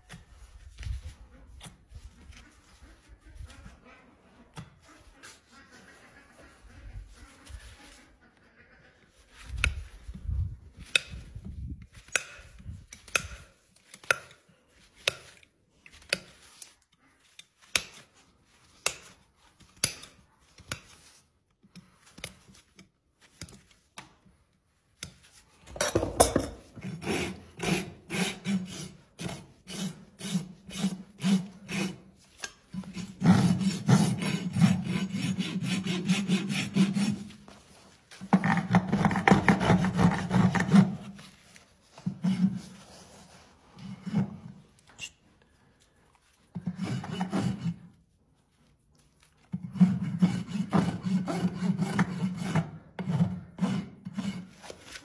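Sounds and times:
hoof rasp filing: 26.4 - 45.2, 46.4 - 48.0, 49.5 - 55.0.

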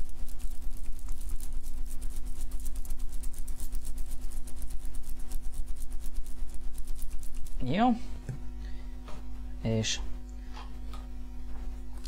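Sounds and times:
machine running with rapid pulse: 0.0 - 8.0
low hum: 0.0 - 12.0.

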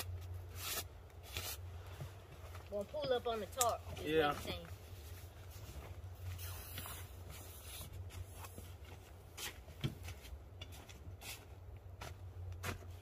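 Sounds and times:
tarp rustling: 4.2 - 8.8.

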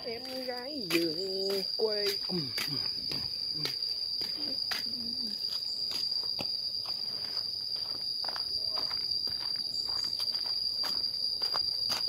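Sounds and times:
footsteps: 0.0 - 12.0
high-pitched insect drone: 0.0 - 12.0.

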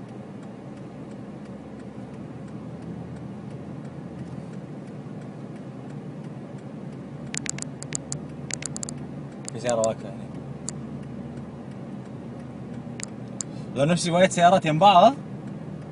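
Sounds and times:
car engine and road noise: 0.0 - 15.9
faint regular ticking: 0.0 - 15.9
sharp clicks: 7.3 - 10.0, 13.0 - 13.6.

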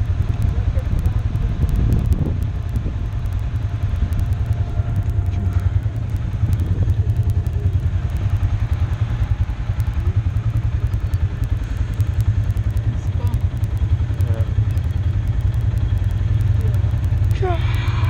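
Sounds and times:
off-road vehicle engine droning: 0.0 - 18.0.

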